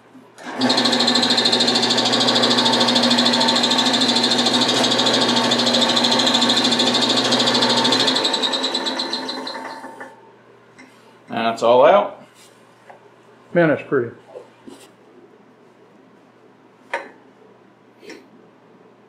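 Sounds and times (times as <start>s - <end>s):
wood lathe whining: 0.4s - 10.2s.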